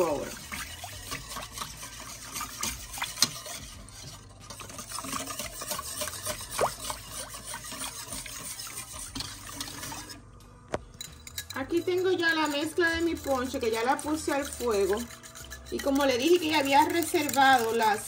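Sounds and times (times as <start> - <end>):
liquid sloshing: 0.0 - 10.3, 11.0 - 18.0
spoon clinking against pot: 10.8 - 18.0.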